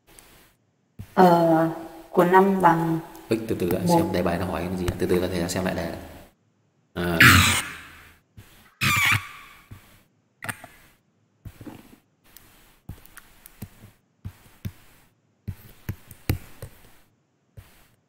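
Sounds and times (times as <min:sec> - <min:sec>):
faint stylus scratching: 0:11.5 - 0:18.0.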